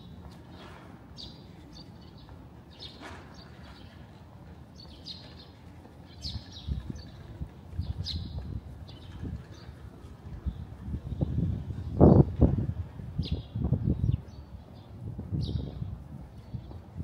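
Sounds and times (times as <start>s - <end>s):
small birds chirping: 0.0s - 12.3s
low outdoor hum: 0.0s - 17.0s.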